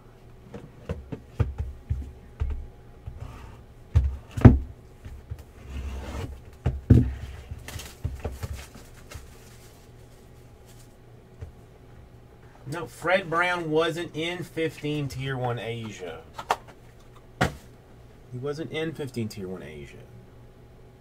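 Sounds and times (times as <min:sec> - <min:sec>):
cardboard box knocks and thumps: 0:06.6 - 0:08.7
plastic wrap rustling: 0:07.1 - 0:11.0.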